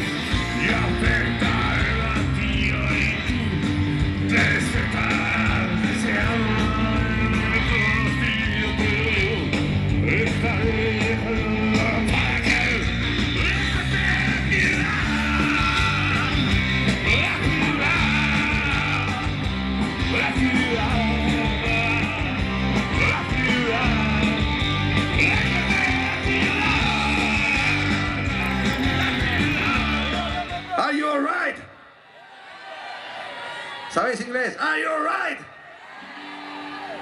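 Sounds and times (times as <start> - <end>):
man singing: 0.0 - 24.5, 25.1 - 30.8
bass guitar: 0.0 - 30.8
drum kit: 0.0 - 30.8
electric guitars: 0.0 - 30.8.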